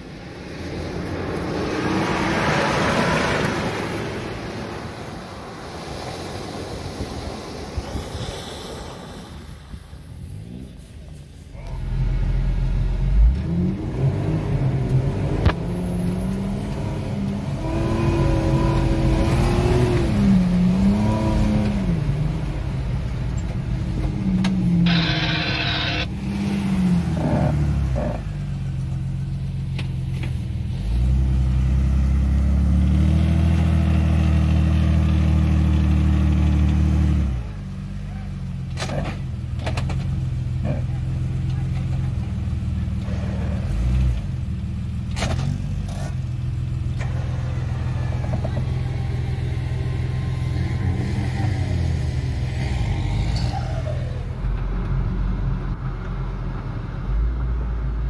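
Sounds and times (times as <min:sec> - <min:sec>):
rush of noise: 0:00.0 - 0:15.8, 0:24.6 - 0:26.1
off-road engines revving in mud: 0:00.8 - 0:05.0, 0:10.1 - 0:55.8
car engine running steadily: 0:10.0 - 0:26.3, 0:27.0 - 0:32.5, 0:37.4 - 0:51.0.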